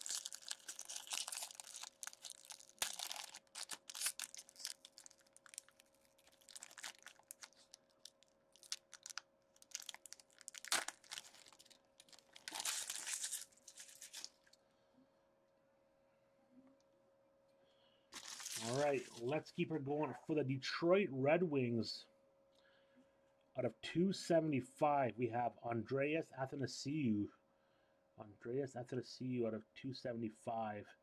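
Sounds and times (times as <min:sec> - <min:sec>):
foil wrapper tearing and crinkling: 0:00.0 - 0:14.6, 0:18.2 - 0:19.2.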